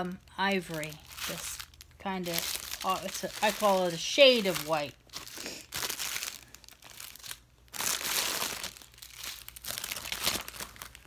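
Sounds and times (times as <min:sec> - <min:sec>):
plastic bags crinkling: 0:00.0 - 0:11.0.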